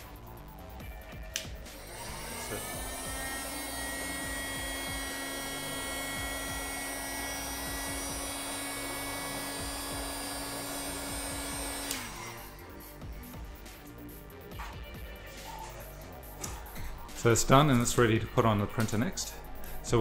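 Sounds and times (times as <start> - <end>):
heat gun fan whine: 1.3 - 13.4
motor winding down: 1.6 - 13.0.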